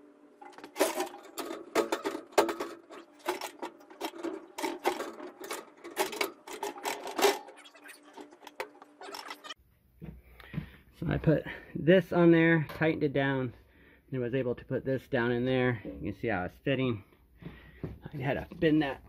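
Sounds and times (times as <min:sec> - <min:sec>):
metal liner clattering: 0:00.4 - 0:08.8.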